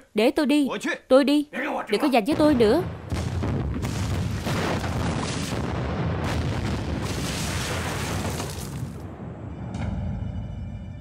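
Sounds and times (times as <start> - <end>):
large explosions rumbling: 2.3 - 9.7.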